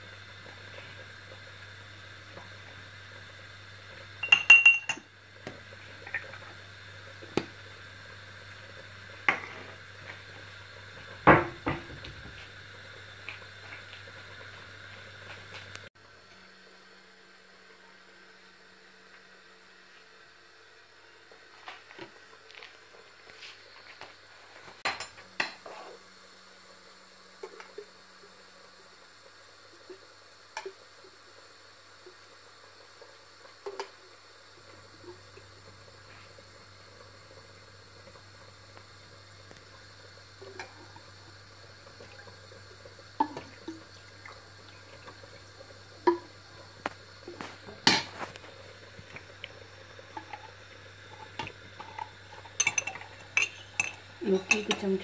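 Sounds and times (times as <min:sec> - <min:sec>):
spoon clinking on ramekin: 0:04.2 - 0:05.0, 0:52.6 - 0:54.8
liquid pouring: 0:39.5 - 0:55.0.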